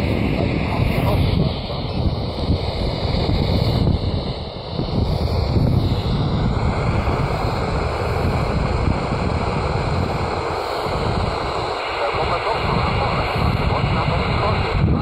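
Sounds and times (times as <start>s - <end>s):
radio static hiss: 0.0s - 15.0s
wind buffeting microphone: 0.0s - 15.0s.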